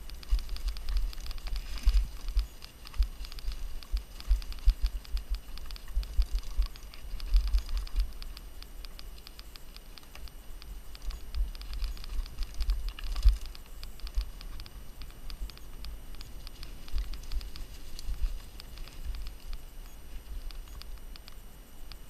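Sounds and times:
mountain bike rattling on dirt trail: 0.0s - 8.4s.

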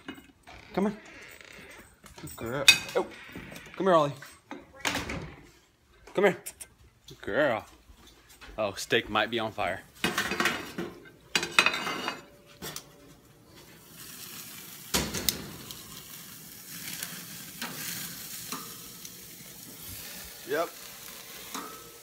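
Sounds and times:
steak sizzling on a grill: 13.4s - 22.0s.

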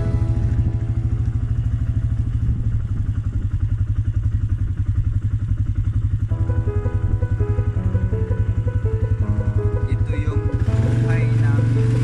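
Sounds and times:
background music: 0.0s - 2.2s, 6.3s - 12.0s
small engine puttering: 0.0s - 12.0s.

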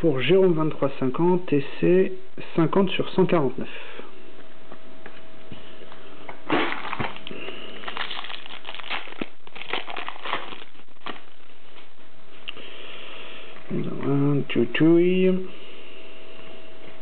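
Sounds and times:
faint steady hum: 0.0s - 17.0s
wrapper crinkling and tearing: 6.5s - 11.4s.

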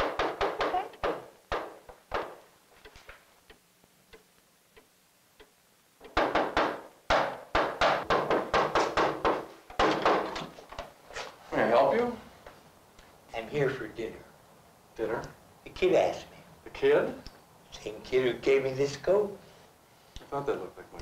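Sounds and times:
knocking on wooden door: 0.0s - 2.5s, 6.0s - 10.6s.

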